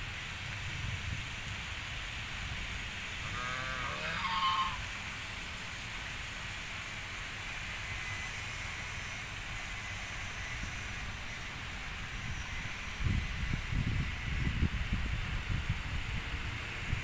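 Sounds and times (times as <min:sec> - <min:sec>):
background hiss with low rumble: 0:00.0 - 0:17.0
goose honking: 0:03.2 - 0:04.9.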